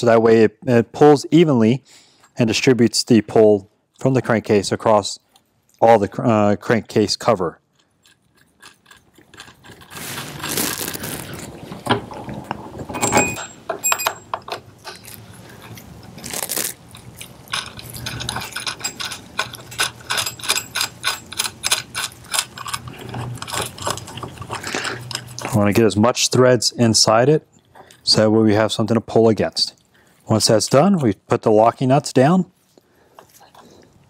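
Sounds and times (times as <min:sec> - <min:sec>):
steel parts clinking and knocking: 0:11.9 - 0:15.2, 0:17.5 - 0:25.6.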